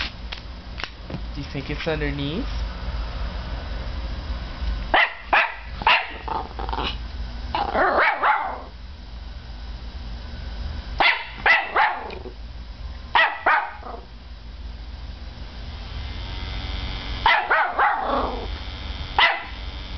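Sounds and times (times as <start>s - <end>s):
puppy barking: 4.9s - 7.0s, 7.6s - 8.7s, 11.0s - 12.3s, 13.2s - 14.1s, 17.2s - 18.5s, 19.2s - 19.6s.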